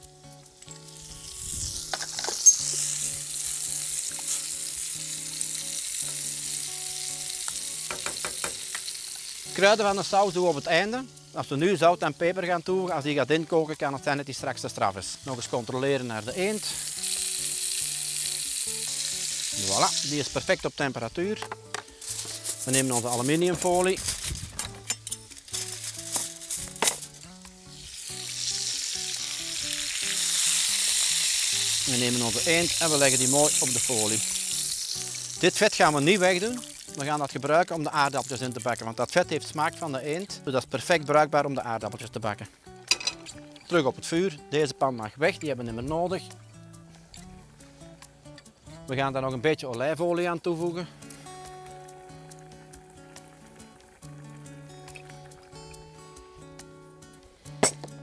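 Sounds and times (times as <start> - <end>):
meat sizzling in a frying pan: 0.0 - 41.6
soft background music: 0.0 - 58.0
sauce hissing and bubbling: 0.1 - 11.4, 15.0 - 20.8, 25.2 - 40.4, 50.9 - 56.4
spoon clicking on pan: 7.5 - 8.9.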